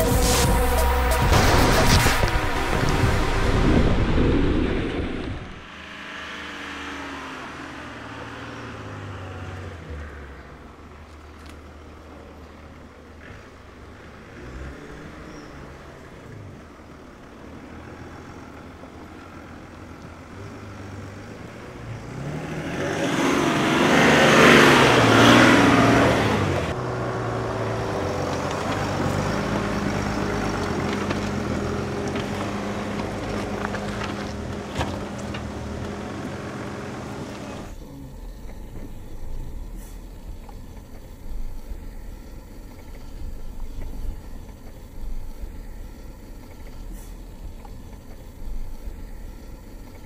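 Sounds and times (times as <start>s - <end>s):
vehicle engine and tyres: 0.0s - 50.0s
vehicle knocking over rocks: 28.2s - 36.6s.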